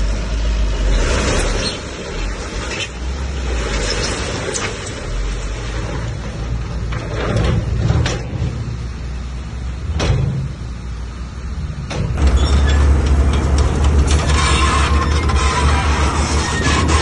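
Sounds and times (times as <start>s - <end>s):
bulldozer diesel engine running: 0.0s - 17.0s.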